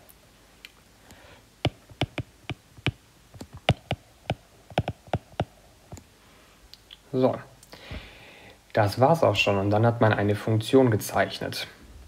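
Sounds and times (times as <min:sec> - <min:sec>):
stylus tapping on tablet screen: 0:01.6 - 0:06.1.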